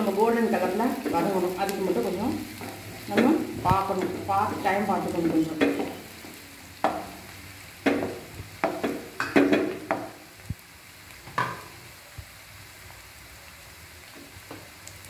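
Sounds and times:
onions sizzling in oil: 0.0 - 15.0
wooden spatula scraping onions: 0.5 - 7.1.

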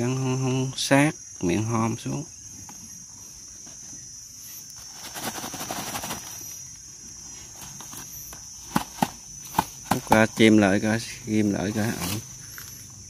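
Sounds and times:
insects droning: 0.0 - 13.0
rustling handling noise: 4.6 - 10.5.

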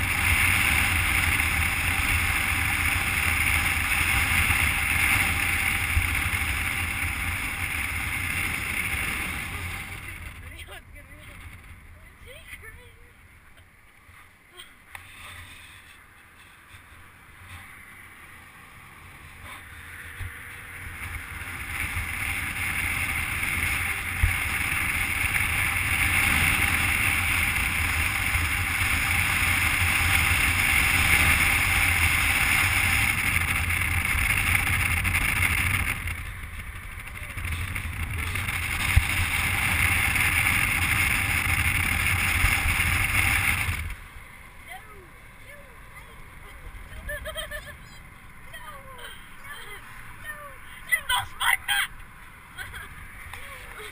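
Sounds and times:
road and tyre rumble: 0.0 - 53.9.

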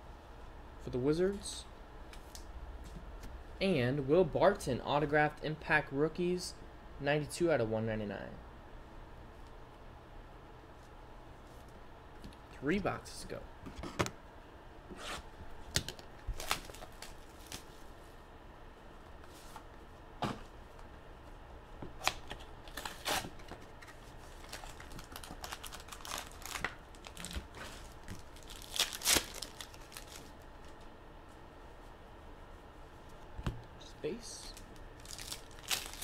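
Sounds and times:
foil wrappers crinkling: 15.7 - 17.8, 22.0 - 30.9, 34.4 - 36.0
foil wrappers tearing: 15.8 - 17.7, 22.0 - 30.8, 34.5 - 36.0.

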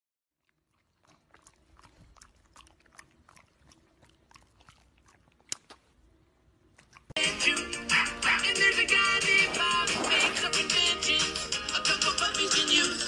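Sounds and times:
dog chewing treats: 0.4 - 6.0.

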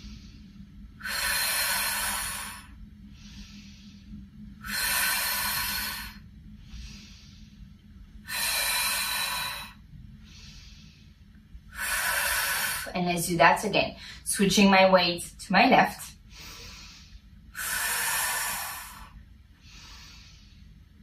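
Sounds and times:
soft breaths: 0.0 - 14.8, 15.8 - 21.0
woman breathing out forcefully: 1.0 - 7.6, 8.2 - 12.9, 16.3 - 20.7.

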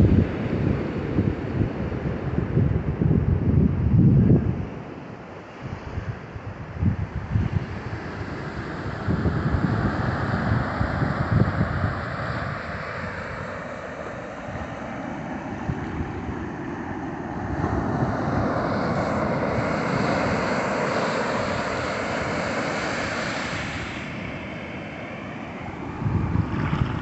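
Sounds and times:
sea surf breaking: 7.3 - 27.0.

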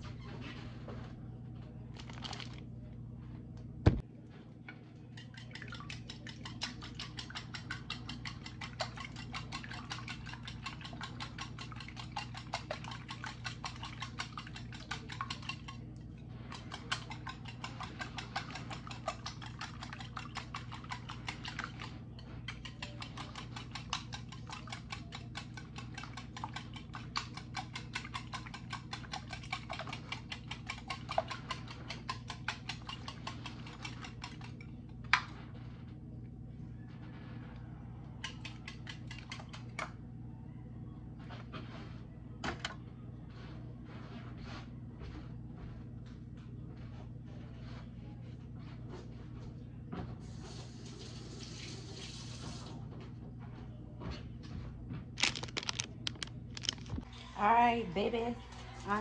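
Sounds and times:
utensil whisking in a bowl: 4.6 - 36.0, 38.2 - 40.0.

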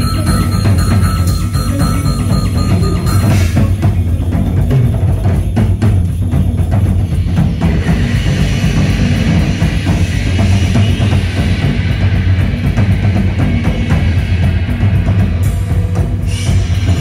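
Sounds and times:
keyboards and electronics: 0.0 - 5.4
drum kit played hard: 0.0 - 17.0.

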